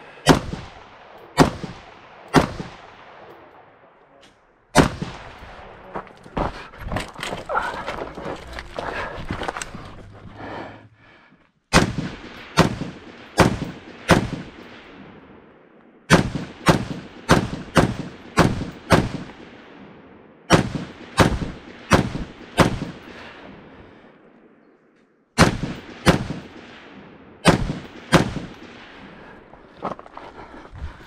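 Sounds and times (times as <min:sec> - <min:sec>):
rifle shots with echo: 0:00.0 - 0:04.1, 0:04.7 - 0:05.9, 0:11.7 - 0:24.7, 0:25.4 - 0:29.8.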